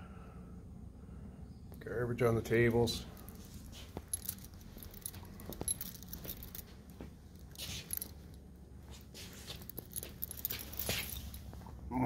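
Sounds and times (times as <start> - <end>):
light jingling: 2.5 - 11.8
footsteps on tiled floor: 3.4 - 11.8.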